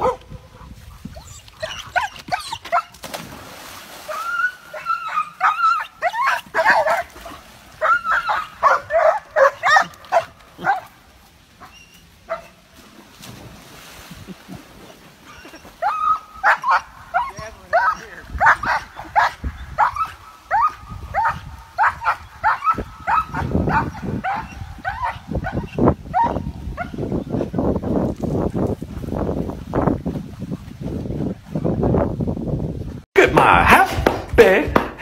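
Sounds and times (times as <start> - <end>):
dogs whining and yipping: 1.1 - 3.0, 4.1 - 10.9, 11.6 - 12.6, 15.2 - 27.5.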